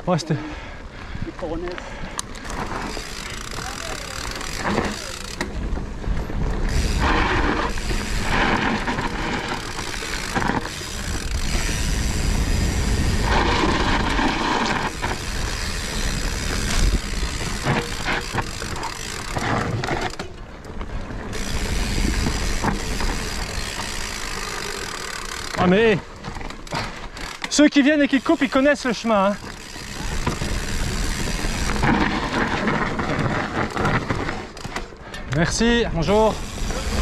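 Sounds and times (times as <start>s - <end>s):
bike tyres rolling over dirt: 0.1s - 37.0s
bike rattling over bumps: 1.1s - 37.0s
wind rushing over microphone: 10.4s - 17.8s.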